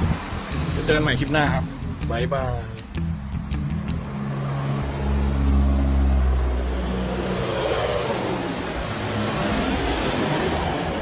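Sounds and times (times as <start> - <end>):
vehicle engine humming: 0.0 - 11.0
vehicle driving past: 3.7 - 11.0.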